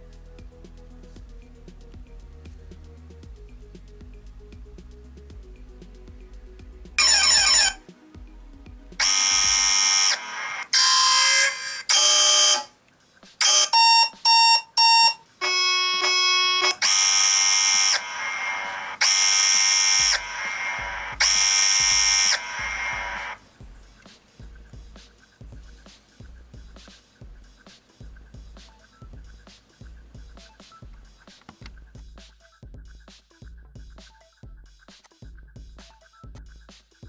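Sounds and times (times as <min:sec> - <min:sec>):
faint background music: 0:00.0 - 0:37.0
buzzy alarm blasts: 0:07.0 - 0:07.8, 0:09.0 - 0:12.8, 0:13.4 - 0:23.4
phone alarm tones: 0:07.0 - 0:07.8, 0:09.0 - 0:12.7, 0:13.4 - 0:23.4
short beeps: 0:13.4 - 0:16.8.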